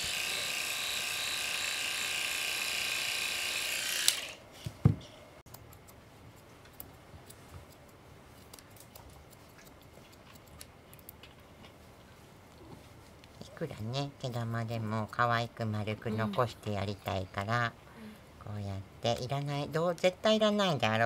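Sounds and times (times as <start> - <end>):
electric clippers buzzing: 0.0 - 4.4.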